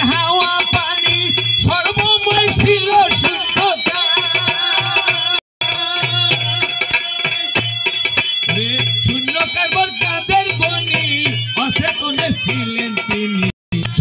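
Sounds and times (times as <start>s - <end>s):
harmonium chords: 0.0s - 14.0s
rattling percussion: 0.0s - 14.0s
bending melody line: 5.6s - 14.0s.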